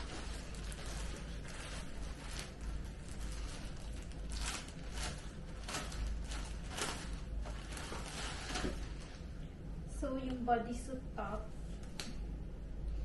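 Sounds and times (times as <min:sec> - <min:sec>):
plastic bag crinkling: 0:00.0 - 0:09.4
steady low hum: 0:00.0 - 0:13.0.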